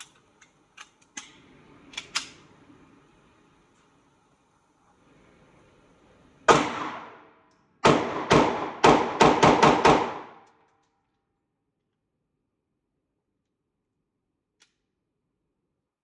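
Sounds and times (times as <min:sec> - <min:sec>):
gunshots: 0:06.5 - 0:07.2, 0:07.8 - 0:10.4.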